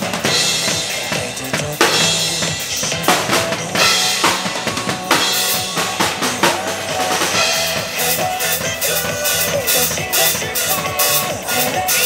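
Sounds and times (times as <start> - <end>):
acoustic drum kit: 0.0 - 12.0
pop backing track: 0.0 - 12.0.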